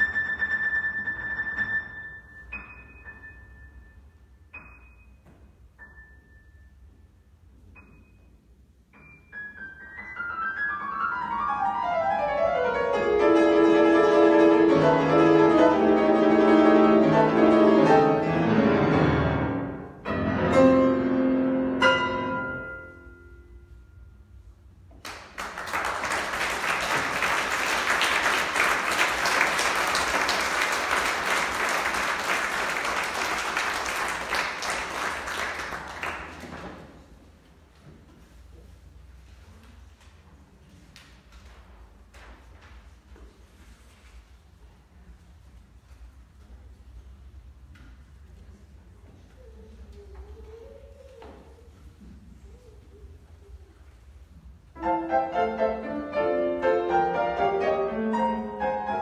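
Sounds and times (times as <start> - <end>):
grand piano chords: 0.0 - 24.9, 54.7 - 59.0
audience applauding: 25.0 - 36.8.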